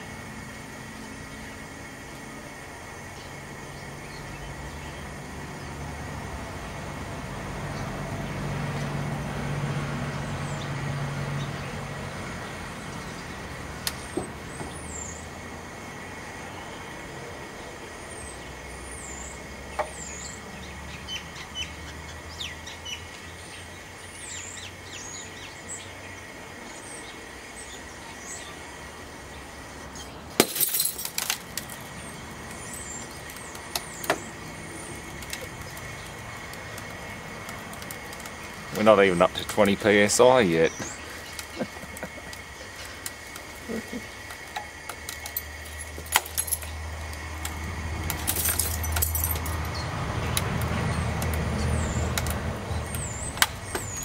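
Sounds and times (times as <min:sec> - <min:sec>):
small birds chirping: 0:02.9 - 0:05.8, 0:10.1 - 0:15.4, 0:17.6 - 0:30.3, 0:31.7 - 0:47.0, 0:49.2 - 0:54.0
glass cracking sharply: 0:30.4 - 0:31.8.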